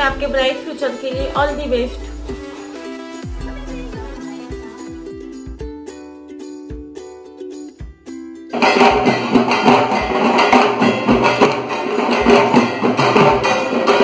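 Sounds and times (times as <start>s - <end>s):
light melodic tune: 0.0s - 14.0s
loud dense drumming: 8.5s - 14.0s.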